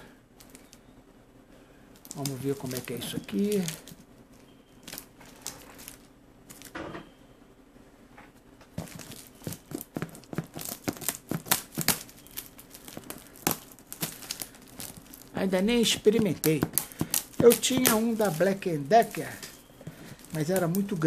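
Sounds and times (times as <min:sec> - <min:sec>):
plastic strapping crinkling: 0:02.0 - 0:06.7, 0:08.6 - 0:21.0
scissors snipping: 0:15.8 - 0:21.0.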